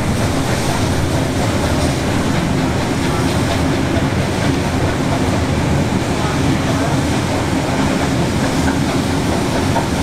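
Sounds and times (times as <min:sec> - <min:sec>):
train carriage rumbling on rails: 0:00.0 - 0:10.0.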